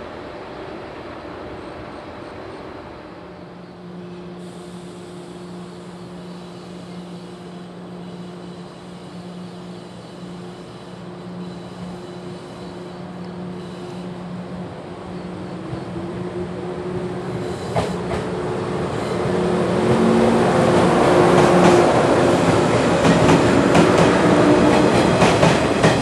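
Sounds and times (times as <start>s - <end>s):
electric train humming: 0.0s - 26.0s.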